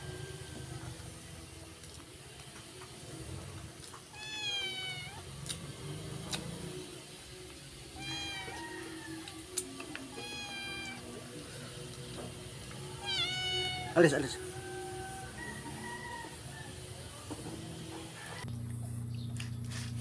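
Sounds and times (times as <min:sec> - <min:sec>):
cat meowing: 0:04.1 - 0:05.2, 0:08.0 - 0:09.0, 0:10.1 - 0:11.1, 0:13.0 - 0:15.3.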